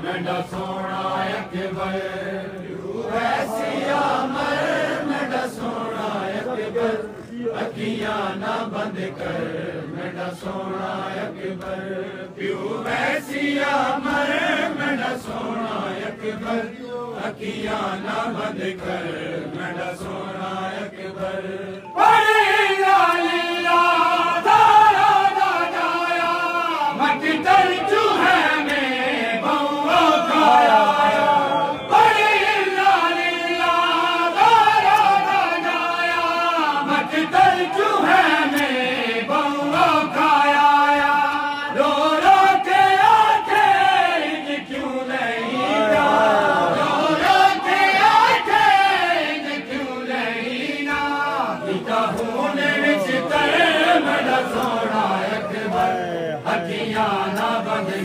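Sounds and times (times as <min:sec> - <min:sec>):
men chanting in chorus: 0:00.0 - 0:58.0.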